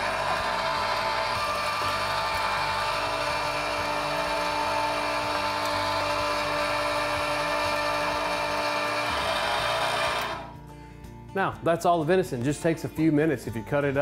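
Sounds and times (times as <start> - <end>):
electric meat grinder running: 0.0 - 10.5.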